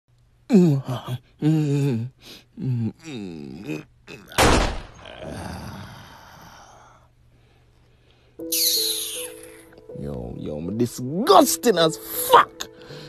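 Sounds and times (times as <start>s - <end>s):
man moaning and groaning: 0.5s - 7.1s.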